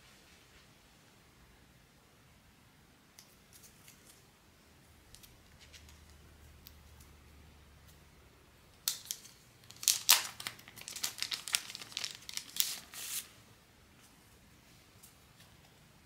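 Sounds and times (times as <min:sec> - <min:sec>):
plastic sleeve crinkling and tearing: 0:08.8 - 0:13.3.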